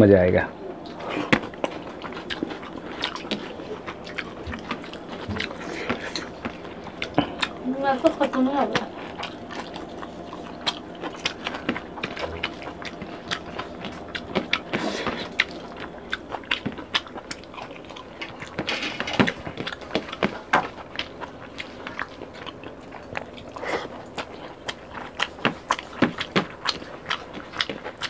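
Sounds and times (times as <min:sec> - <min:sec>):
chewing and lip smacking: 0:00.7 - 0:28.0.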